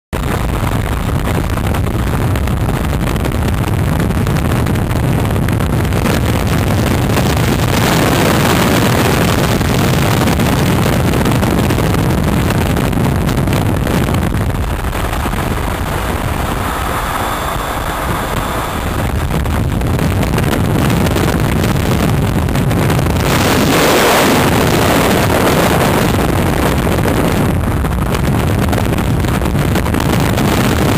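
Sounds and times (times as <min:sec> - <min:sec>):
motorcycle engine and road noise: 0:00.2 - 0:30.9
wind rush on microphone: 0:00.2 - 0:30.9.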